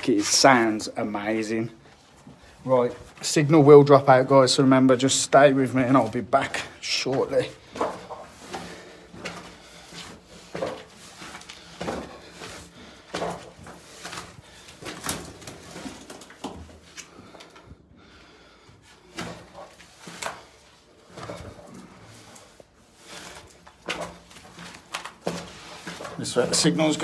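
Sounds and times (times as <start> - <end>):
footsteps on spiral staircase: 0.0 - 27.0.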